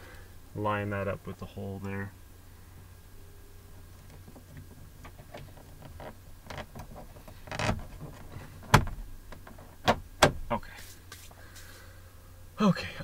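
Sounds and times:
scraping rustle: 3.8 - 9.8, 10.6 - 11.9.

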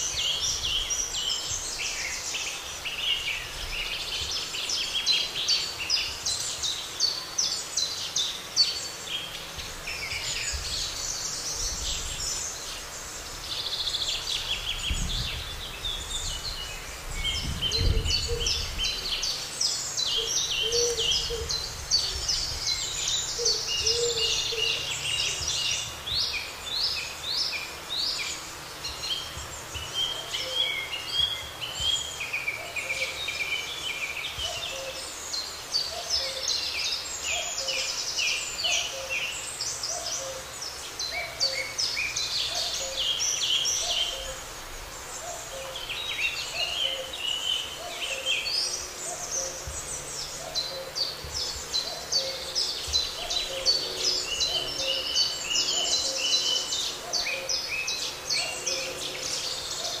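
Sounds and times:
songbirds twittering: 0.0 - 60.0
low hooting bird call: 20.2 - 22.2, 51.8 - 57.7.

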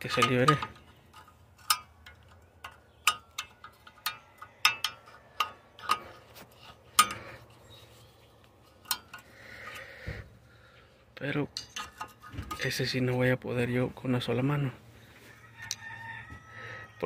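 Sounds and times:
screwdriver clinking on metal: 0.0 - 7.5, 11.5 - 12.8.

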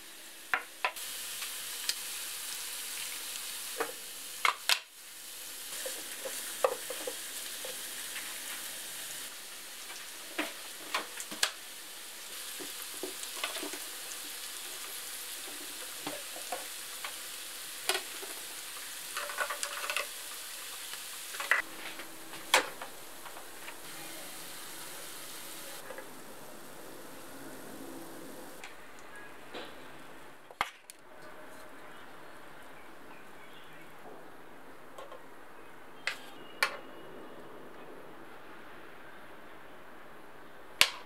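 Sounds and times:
food sizzling: 0.0 - 28.7.

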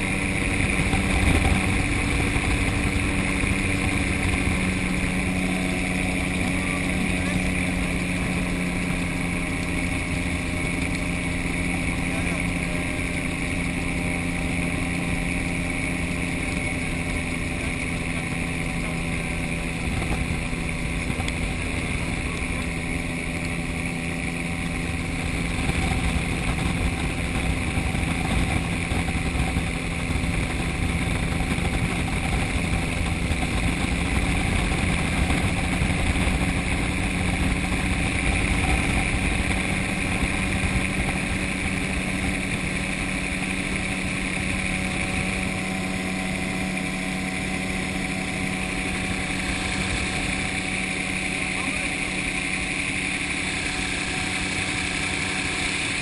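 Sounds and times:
gyrocopter engine and propeller: 0.0 - 56.0
rush of air noise: 0.0 - 56.0.

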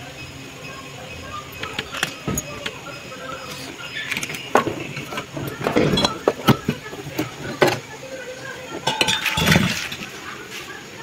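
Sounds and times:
compressor knocks and clatter: 4.2 - 7.9.

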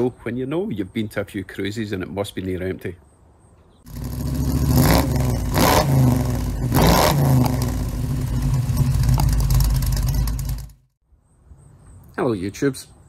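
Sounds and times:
car engine revving: 3.9 - 10.8.

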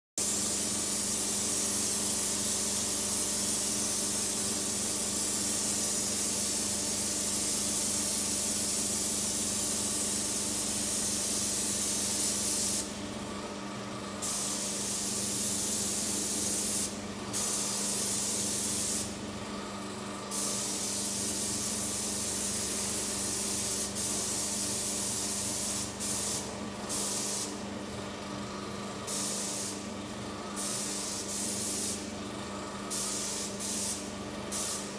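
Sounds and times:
paint spray gun hissing: 0.2 - 12.9, 14.2 - 19.2, 20.3 - 27.6, 29.1 - 29.8, 30.6 - 32.1, 32.9 - 34.9.

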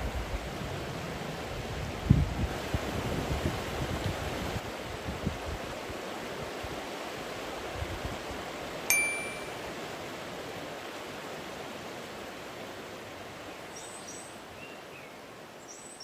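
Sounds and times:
sharp ringing ping: 8.9 - 9.7.

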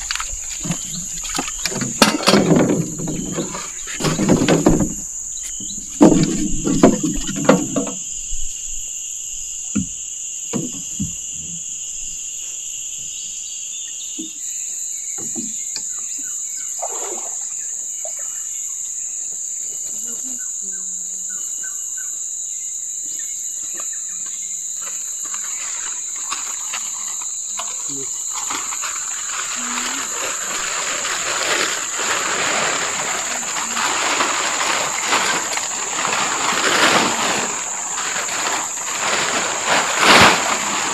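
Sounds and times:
bamboo poles knocking: 0.0 - 8.0
insects droning: 0.0 - 40.9.

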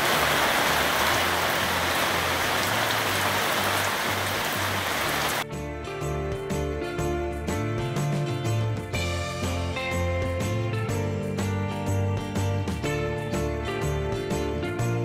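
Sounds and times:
steady rain on canopy: 0.0 - 5.4
background music with bass: 0.1 - 15.0.

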